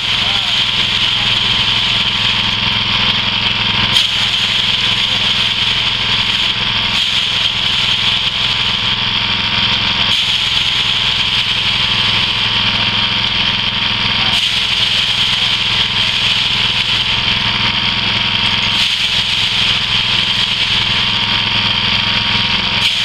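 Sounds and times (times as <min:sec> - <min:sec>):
rice thresher engine running: 0:00.0 - 0:23.0.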